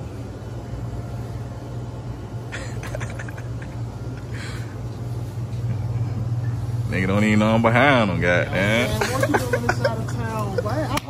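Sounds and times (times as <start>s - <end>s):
soft hissy rustles: 8.4s - 11.0s.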